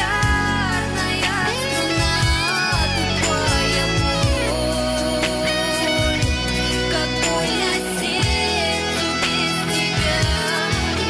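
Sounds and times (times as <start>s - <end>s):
pop song with gliding melody: 0.0s - 11.0s.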